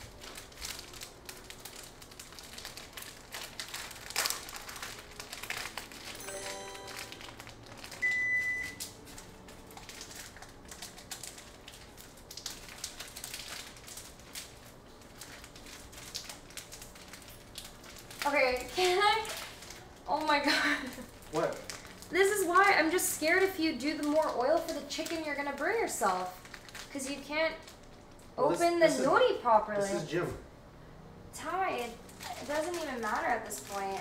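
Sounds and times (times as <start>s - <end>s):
plastic packet crinkling: 0.0s - 28.4s, 31.8s - 34.0s
electronic alert tone: 6.2s - 7.4s.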